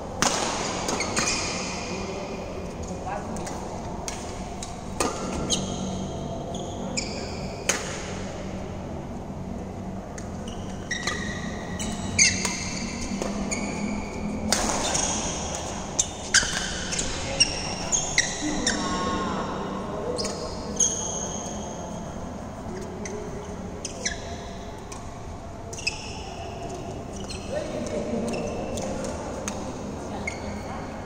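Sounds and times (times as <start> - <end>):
rackets striking shuttlecock: 0.2 - 1.6, 7.6 - 8.2, 14.5 - 17.6
shoes squeaking on court: 5.1 - 7.6, 10.3 - 19.1, 22.7 - 24.6, 25.7 - 30.6.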